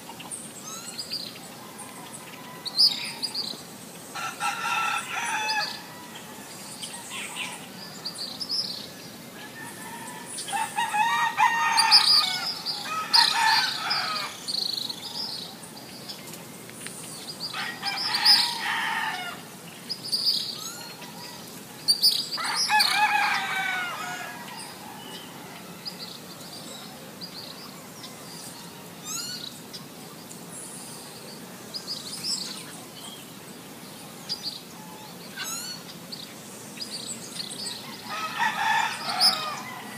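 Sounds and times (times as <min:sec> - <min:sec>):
small birds chirping: 0:00.0 - 0:39.9
rooster crowing: 0:01.7 - 0:03.4, 0:04.2 - 0:08.2, 0:09.4 - 0:14.4, 0:17.5 - 0:19.5, 0:22.4 - 0:26.3, 0:37.7 - 0:39.9.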